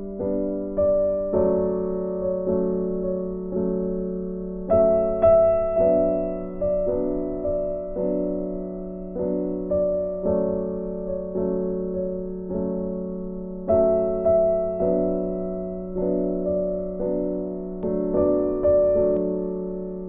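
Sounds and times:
slow piano music: 0:00.0 - 0:20.0.

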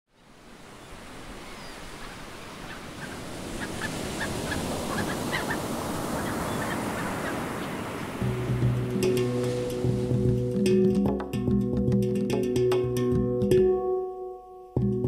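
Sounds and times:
surf on rocky shore: 0:00.2 - 0:10.9.

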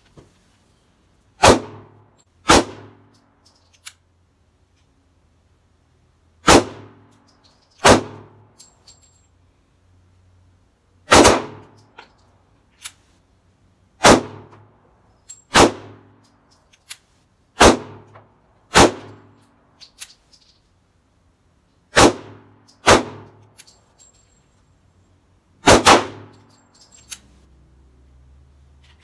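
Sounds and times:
pistol shots with ringing echo: 0:01.4 - 0:03.0, 0:06.4 - 0:07.1, 0:07.8 - 0:08.4, 0:11.1 - 0:11.7, 0:14.0 - 0:14.6, 0:15.5 - 0:16.1, 0:17.6 - 0:18.1, 0:18.7 - 0:19.2, 0:21.9 - 0:23.4, 0:25.6 - 0:26.3.

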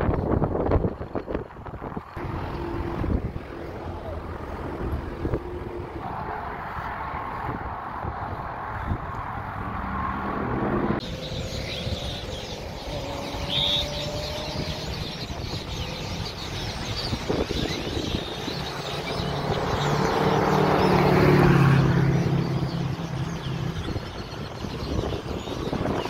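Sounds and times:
road traffic: 0:00.0 - 0:26.0
vehicle passing: 0:01.8 - 0:26.0
birds chirping and chattering: 0:11.0 - 0:26.0.

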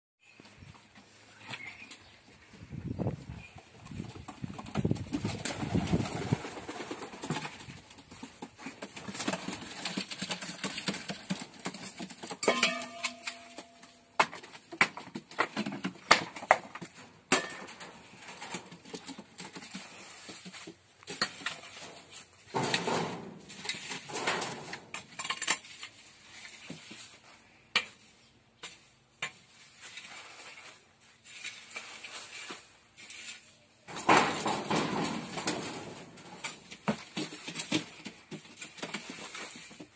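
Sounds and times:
rake knocks and clanks: 0:03.9 - 0:39.9
rake scraping over dirt floor: 0:16.7 - 0:39.9.

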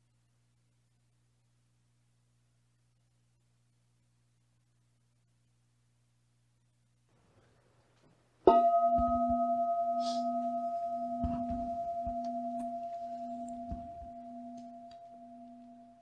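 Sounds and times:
singing bowl ringing: 0:08.5 - 0:16.0
soft low thumps: 0:08.5 - 0:16.0.

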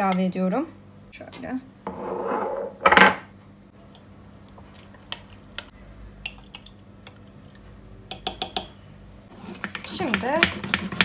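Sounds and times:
spoon scraping against glass: 0:01.8 - 0:03.0.

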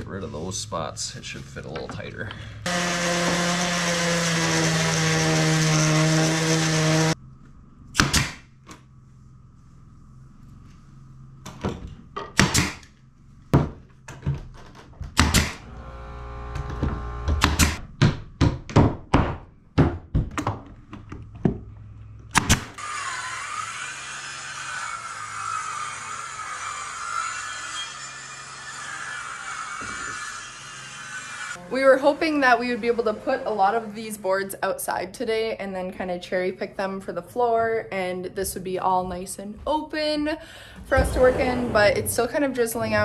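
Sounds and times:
power tool running: 0:02.7 - 0:07.2, 0:15.2 - 0:17.8, 0:22.6 - 0:33.8
knocks on wood floorboards: 0:16.6 - 0:20.7.

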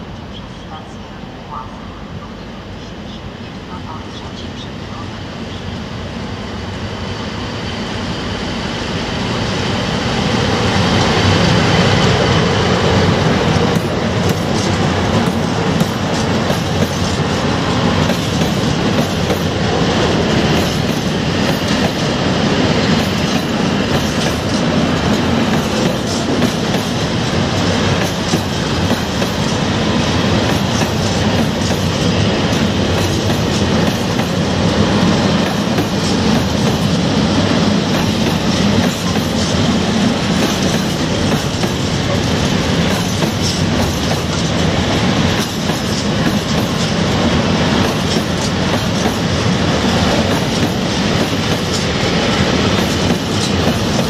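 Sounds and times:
electric locomotive passing: 0:00.0 - 0:54.0.

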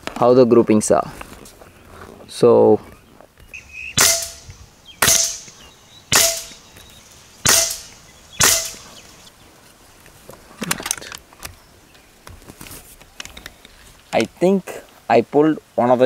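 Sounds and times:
air rifle shots cracking: 0:03.9 - 0:09.2.

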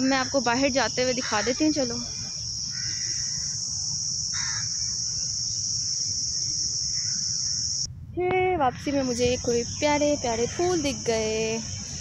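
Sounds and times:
insects droning: 0:00.0 - 0:12.0
low rumble: 0:07.8 - 0:12.0.

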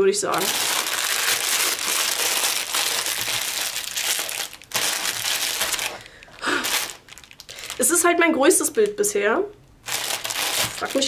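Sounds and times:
plastic packaging crinkling: 0:00.2 - 0:09.0, 0:09.8 - 0:11.0.

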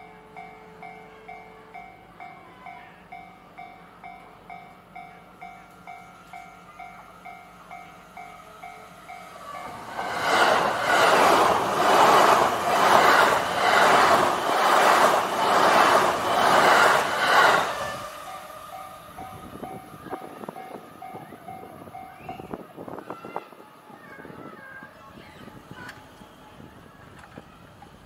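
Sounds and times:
train wheel and rail noise: 0:00.0 - 0:28.0.

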